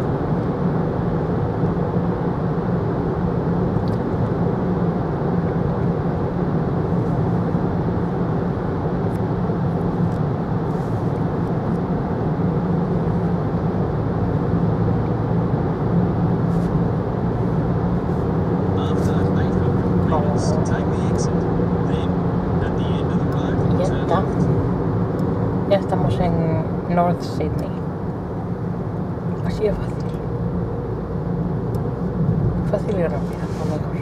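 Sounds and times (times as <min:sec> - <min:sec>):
road noise inside car: 0:00.0 - 0:34.0.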